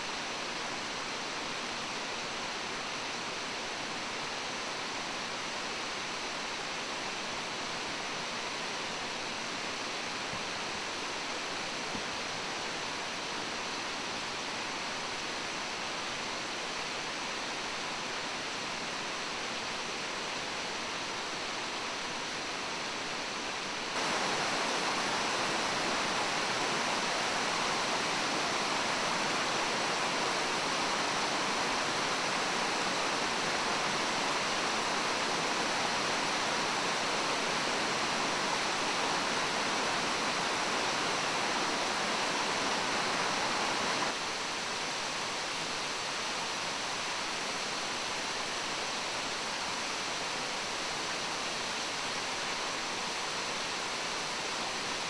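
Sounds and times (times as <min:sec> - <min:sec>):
waterfall rushing: 0:22.7 - 0:55.0.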